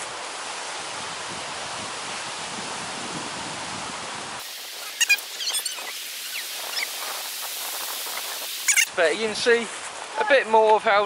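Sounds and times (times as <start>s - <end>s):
outdoor hiss: 0.0s - 11.0s
high-pitched squeaky calls: 4.8s - 7.2s, 8.4s - 9.0s.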